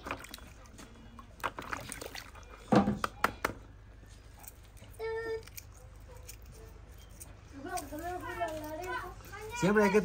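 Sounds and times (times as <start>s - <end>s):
water being handled: 0.0s - 3.1s.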